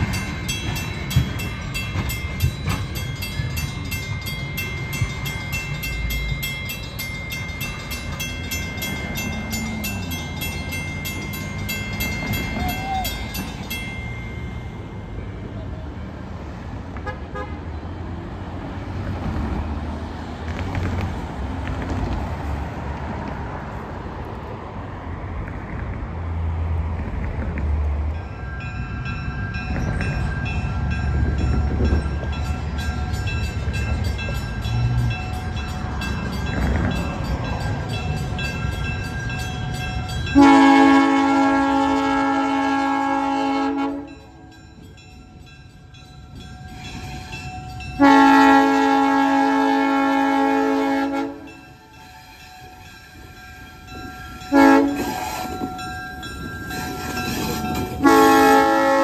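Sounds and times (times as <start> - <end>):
air horn blast: 40.4 - 44.1, 48.0 - 51.5, 54.5 - 55.5, 58.0 - 59.0.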